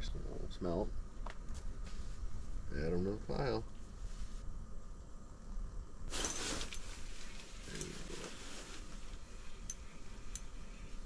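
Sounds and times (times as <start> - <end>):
rustle of clothing: 1.5 - 2.6, 4.0 - 4.5, 6.1 - 11.0.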